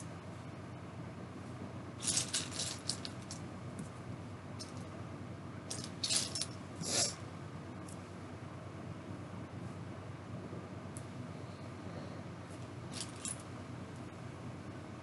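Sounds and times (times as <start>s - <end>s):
small hard objects clinking: 2.0s - 3.4s, 5.7s - 6.6s, 12.9s - 13.4s.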